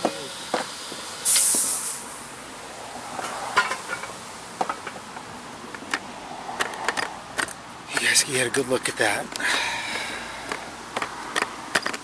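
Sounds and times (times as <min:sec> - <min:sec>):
loud hiss: 0:00.0 - 0:04.6.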